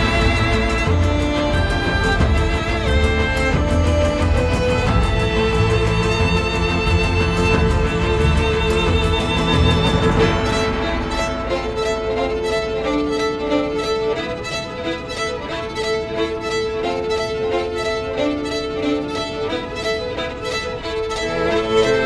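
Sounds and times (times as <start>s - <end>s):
background music with steady beat: 0.0s - 22.0s.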